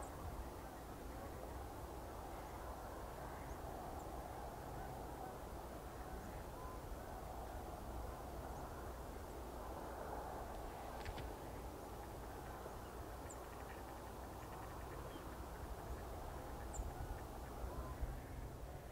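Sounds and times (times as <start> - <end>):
faint bird calls: 2.3 - 7.8, 10.6 - 18.5.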